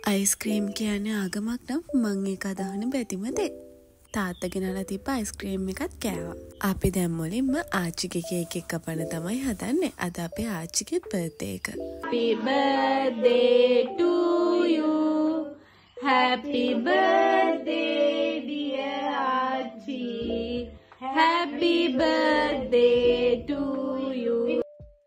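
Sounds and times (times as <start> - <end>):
women singing unaccompanied: 11.5 - 24.7.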